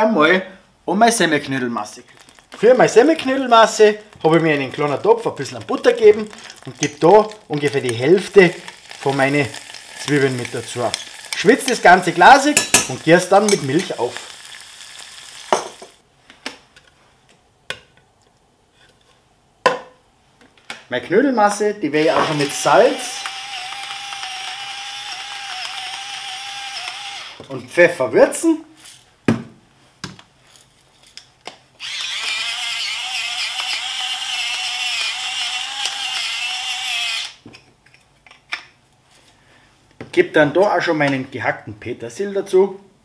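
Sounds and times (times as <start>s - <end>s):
onions sizzling in butter: 2.0s - 16.0s, 22.2s - 27.2s
pepper mill grinding: 2.0s - 16.0s, 22.0s - 27.6s, 31.8s - 37.4s
spoon and jug knocking pan: 12.6s - 13.9s.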